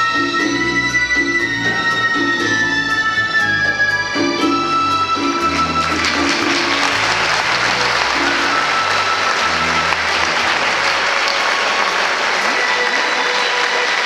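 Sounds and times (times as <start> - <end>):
audience applauding: 5.3 - 14.0.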